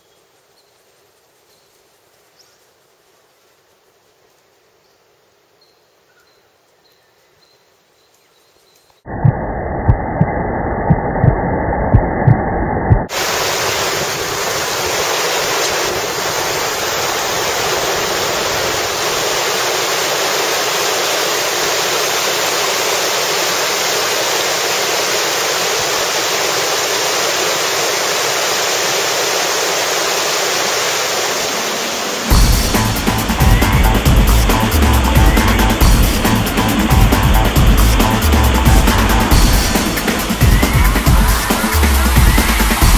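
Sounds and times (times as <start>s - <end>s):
muffled rumble: 9.1s - 13.1s
river rapid rushing: 13.1s - 42.9s.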